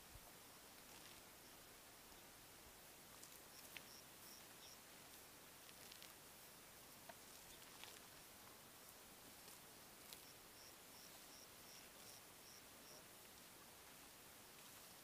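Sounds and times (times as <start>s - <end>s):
faint steady hiss: 0.0s - 15.0s
faint ticks: 3.1s - 6.2s, 9.3s - 13.4s.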